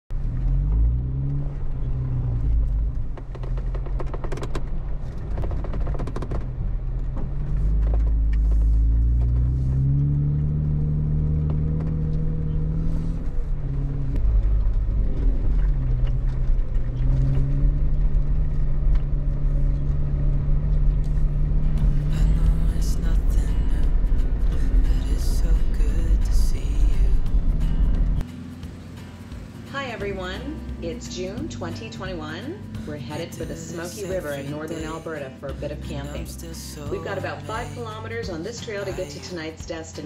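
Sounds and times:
car engine running: 0.1 - 39.8
knocks and rattles: 2.6 - 9.4.

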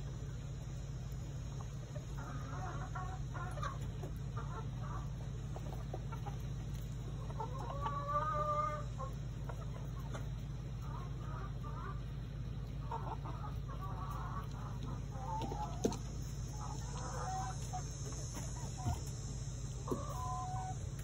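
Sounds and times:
steady low rumble: 0.0 - 7.9
chickens clucking: 0.0 - 21.0.

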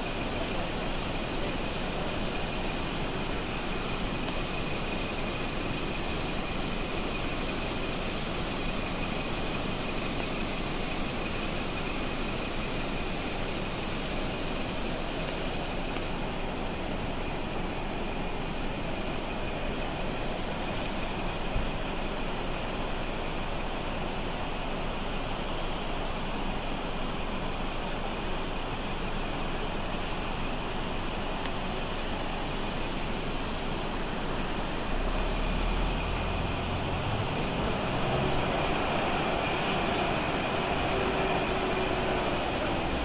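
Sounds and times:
vehicle driving heard from inside: 34.8 - 43.0.

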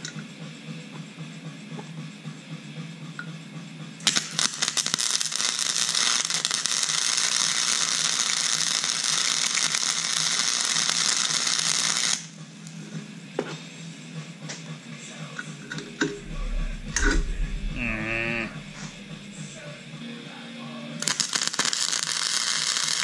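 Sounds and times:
welding arc crackling: 4.1 - 12.3, 21.0 - 23.0.

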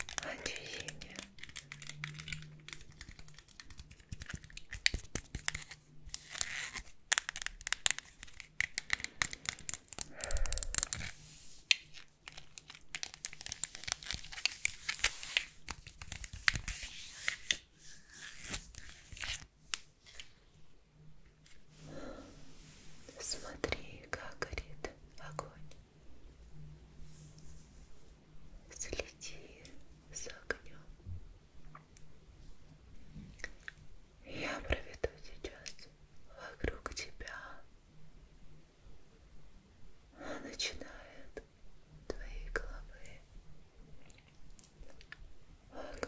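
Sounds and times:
crinkling and crackling rustles: 0.0 - 20.4.

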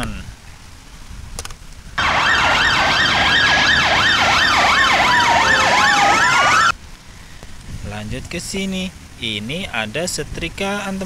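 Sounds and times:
police siren yelp: 2.0 - 6.7
siren wailing tone: 2.0 - 6.7.

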